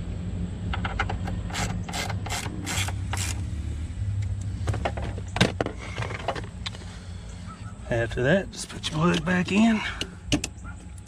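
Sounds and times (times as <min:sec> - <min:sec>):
low hum: 0:00.0 - 0:09.2
ratchet wrench ratcheting: 0:01.5 - 0:03.4.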